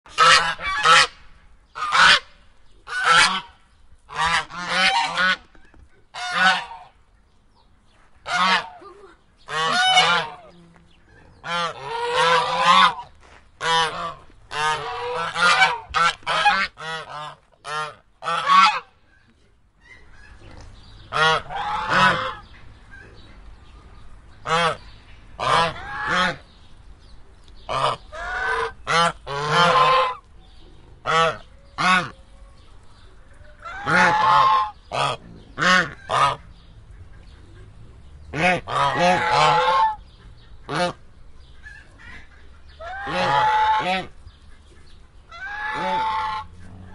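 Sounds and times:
geese honking: 0.1 - 1.2, 1.8 - 2.3, 2.9 - 5.5, 6.1 - 7.0, 8.2 - 8.8, 9.5 - 10.7, 11.4 - 18.9, 21.1 - 22.5, 24.4 - 24.8, 25.4 - 26.4, 27.7 - 30.3, 31.0 - 32.2, 33.4 - 37.6, 38.3 - 46.9
faint low rumble: 18.8 - 46.9.

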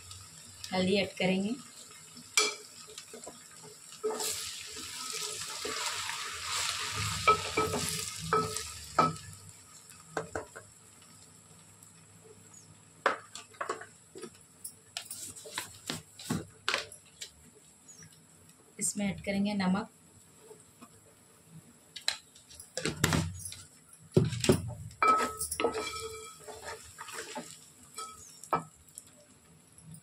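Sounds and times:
spices sizzling in oil: 0.0 - 30.0
spoon stirring and knocking pot: 7.1 - 9.4, 13.1 - 14.3, 22.6 - 28.8.

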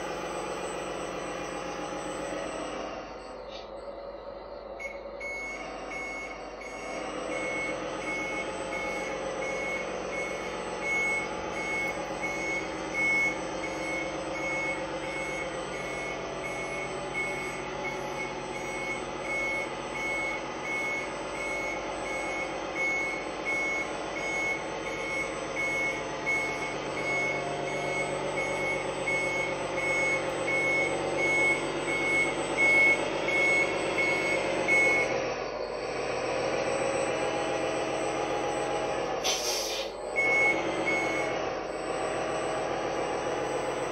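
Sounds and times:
diesel truck engine sound: 0.0 - 43.9
reversing beeper: 0.0 - 43.9.

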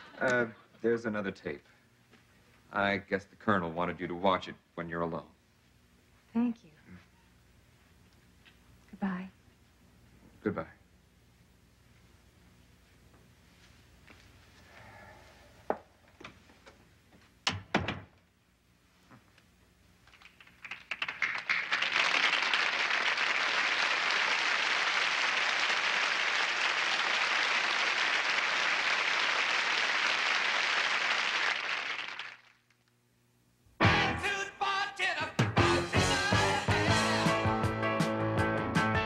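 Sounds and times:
door shutting: 17.5 - 18.2
studio audience applause: 20.1 - 32.6.

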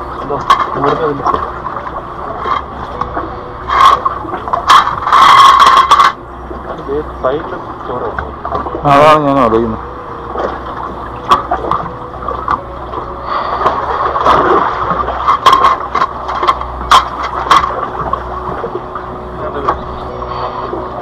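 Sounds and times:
steady low rumble: 0.0 - 21.0
water sloshing between rocks: 0.0 - 21.0
sharp splashes: 13.2 - 18.8.

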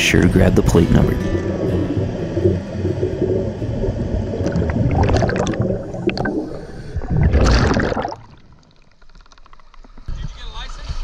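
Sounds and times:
bubbles gurgling: 0.2 - 9.1
regulator breathing underwater: 6.1 - 7.4.

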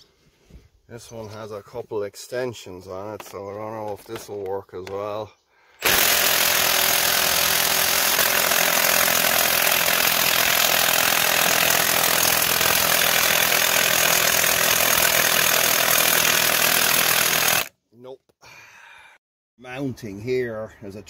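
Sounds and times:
impact wrench hammering: 5.8 - 17.7.

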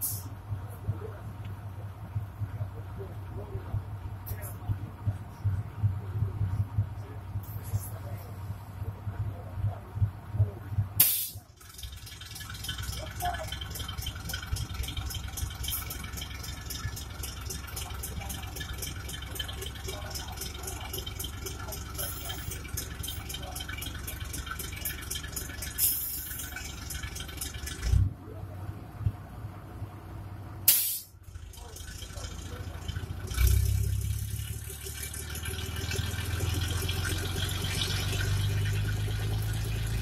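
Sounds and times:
diesel railcar engine clattering: 0.0 - 40.0
bursts of hiss: 11.0 - 11.4, 30.7 - 31.2.

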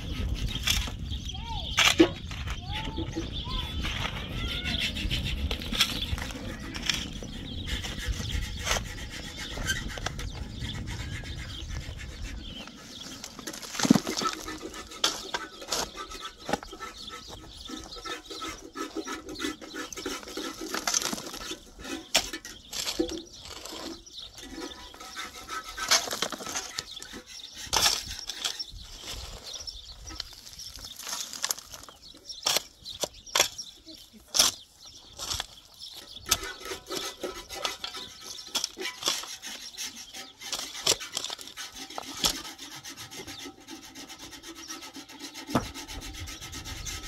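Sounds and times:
pickaxe and shovel striking stones: 1.7 - 2.6, 13.2 - 16.8, 19.8 - 24.0, 25.7 - 28.8, 30.1 - 42.5.

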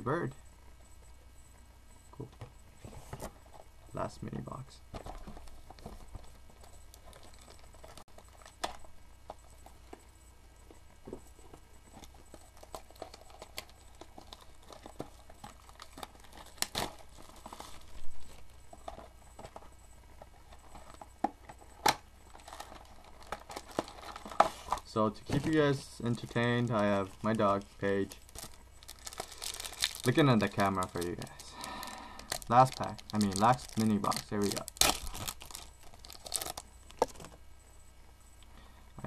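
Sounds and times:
plastic shrink wrap crinkling: 5.2 - 8.8, 11.9 - 19.6, 20.2 - 37.4.

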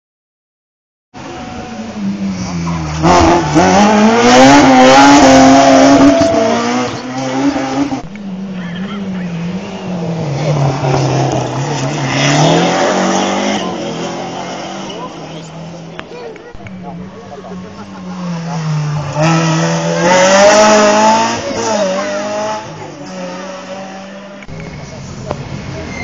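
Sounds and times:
car engine revving hard: 2.4 - 15.6, 17.9 - 24.4.

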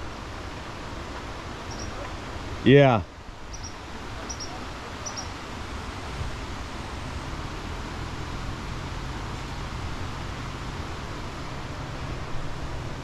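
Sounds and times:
river rapids rushing: 0.0 - 13.0
short high bird chirps: 1.7 - 2.0, 3.5 - 5.3.

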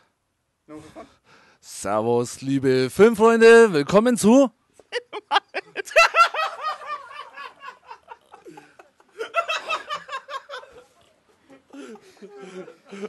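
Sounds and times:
men laughing: 4.8 - 13.0.

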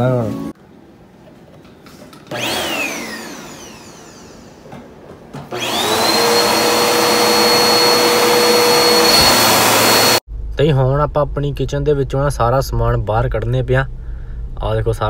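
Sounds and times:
vacuum cleaner motor whine: 2.3 - 4.8, 5.4 - 10.2.

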